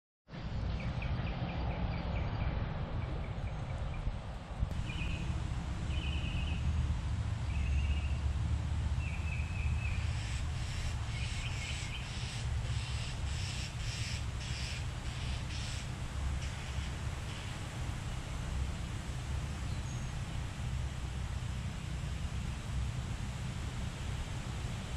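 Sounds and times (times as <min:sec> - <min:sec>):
birds calling: 0:00.7 - 0:06.8, 0:09.0 - 0:17.7.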